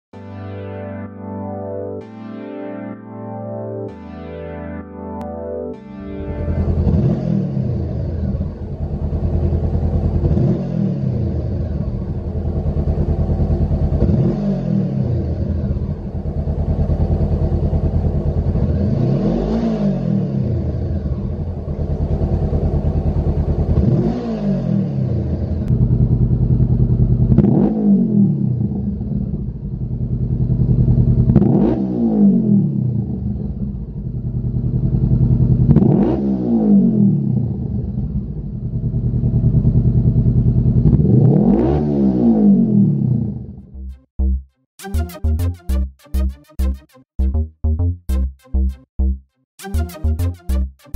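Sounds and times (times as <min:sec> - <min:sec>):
motorcycle engine idling and revving: 0:06.3 - 0:44.4.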